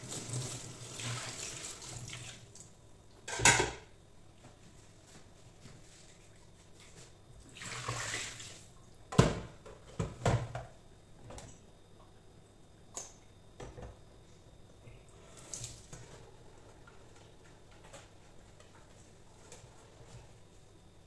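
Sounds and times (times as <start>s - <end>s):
metal pot clanking in sink: 3.3s - 3.9s.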